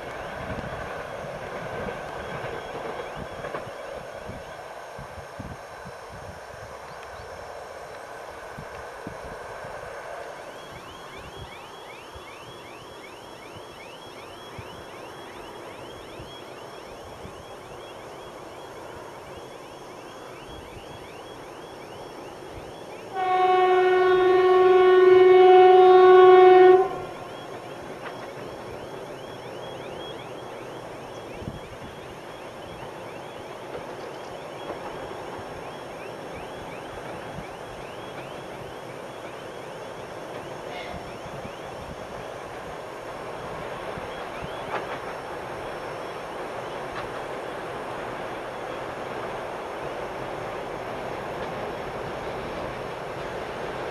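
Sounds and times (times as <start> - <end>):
diesel locomotive engines running: 0.0 - 53.9
locomotive air horn blast: 23.1 - 27.2.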